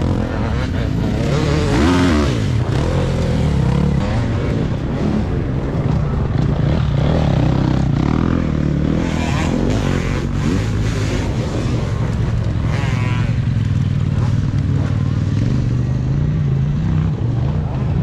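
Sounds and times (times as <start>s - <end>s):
dirt bike engines revving: 0.0s - 18.0s
dirt bike passing by: 0.0s - 18.0s.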